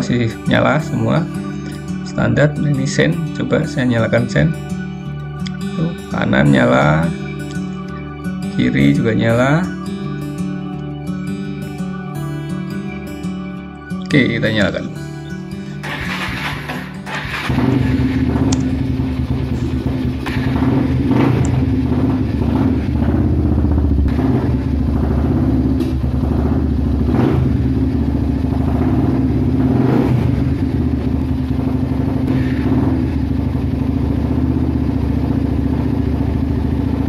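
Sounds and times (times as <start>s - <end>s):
engine revving: 14.4s - 37.0s
motorcycle engine running: 14.4s - 37.0s.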